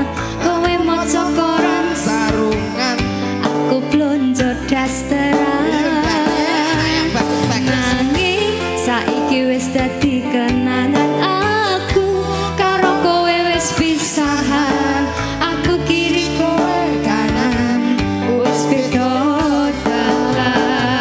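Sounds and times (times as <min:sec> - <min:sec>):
drum strokes: 0:06.0 - 0:08.4.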